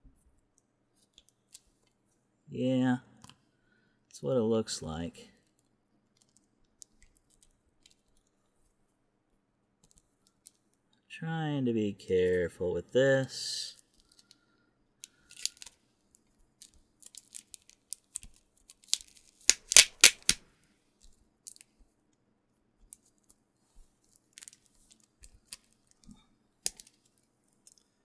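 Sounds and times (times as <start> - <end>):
shrink wrap crinkling: 15.0 - 15.8, 16.6 - 20.4.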